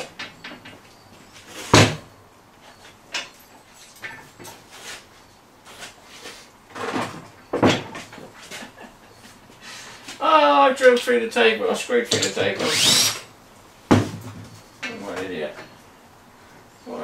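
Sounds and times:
drill set down on boards: 0:01.6 - 0:02.1.

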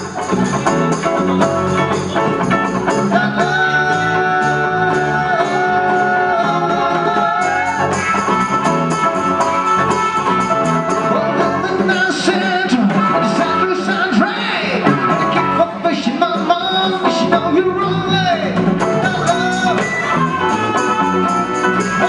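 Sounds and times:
strummed guitars: 0:00.0 - 0:22.0
harmonica long notes: 0:19.1 - 0:22.0.

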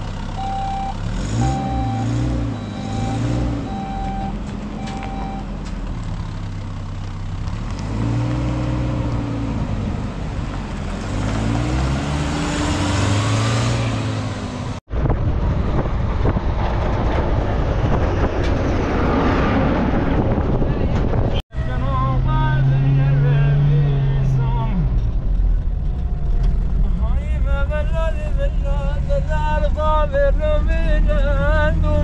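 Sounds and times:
steady engine rumble: 0:00.0 - 0:32.0
vehicle engines passing: 0:00.0 - 0:32.0
short electronic beep: 0:00.4 - 0:05.5.

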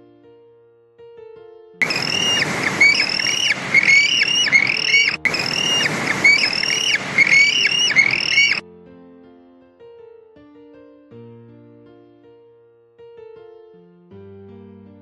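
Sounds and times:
loud rushing din: 0:01.8 - 0:08.6
seabirds calling: 0:01.8 - 0:08.6.

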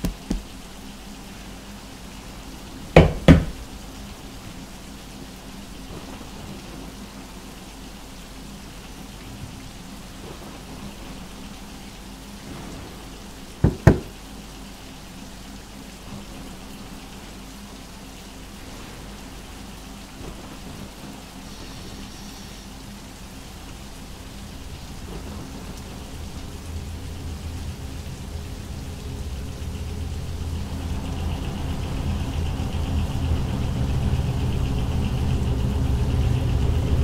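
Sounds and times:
knuckle knocks on wall: 0:00.0 - 0:00.4, 0:03.0 - 0:03.5, 0:13.6 - 0:14.1
steady hiss: 0:00.0 - 0:37.0.

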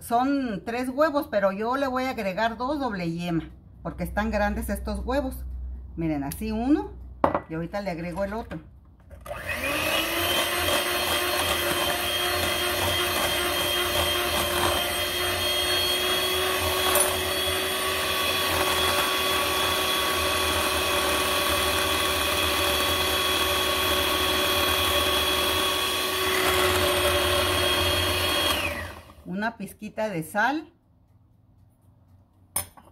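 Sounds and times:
electric hand mixer whisking: 0:09.2 - 0:29.4.

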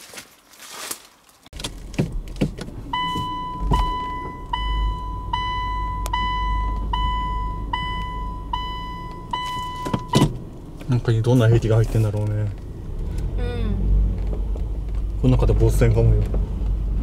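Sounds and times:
electronic beeper tone: 0:03.0 - 0:10.2.

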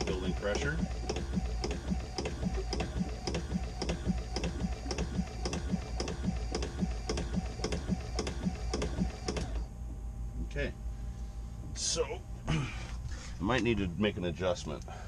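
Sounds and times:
rhythmic pump knocking: 0:00.0 - 0:09.7
vacuum pump motor hum: 0:00.0 - 0:10.6.

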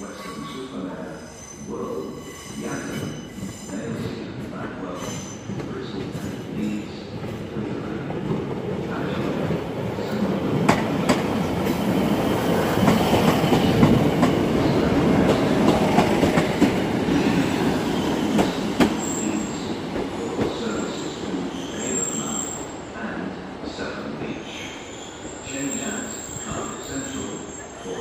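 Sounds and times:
high wheel squeal: 0:00.1 - 0:03.9, 0:21.6 - 0:22.7, 0:24.6 - 0:28.0.

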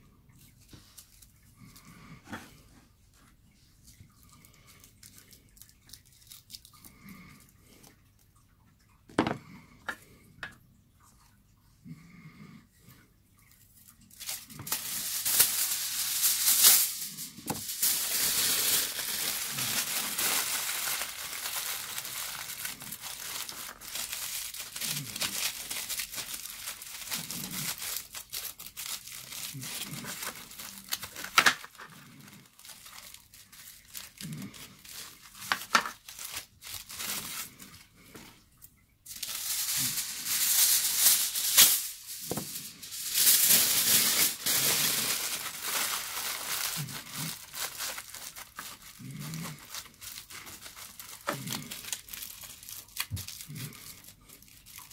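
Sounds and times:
foil tearing and crumpling: 0:05.0 - 0:07.3, 0:14.1 - 0:37.9, 0:39.1 - 0:54.9.

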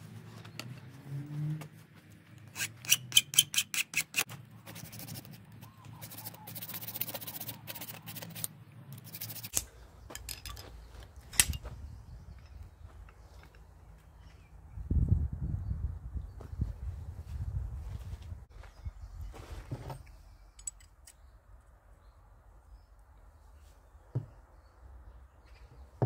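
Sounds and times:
hand file scraping steel: 0:02.4 - 0:05.4, 0:06.0 - 0:09.6.

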